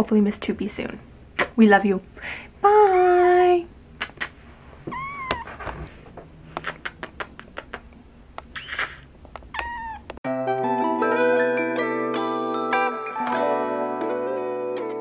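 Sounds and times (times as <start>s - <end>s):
kitten meowing: 4.9s - 5.6s, 8.6s - 10.2s
light music with mallet tones: 10.3s - 15.0s.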